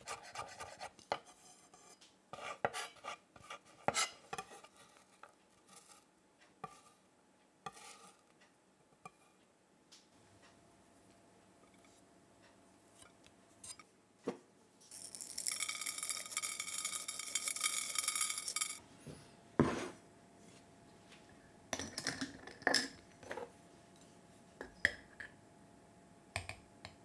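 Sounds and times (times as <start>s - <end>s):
metal spoon clinking: 14.9s - 18.8s.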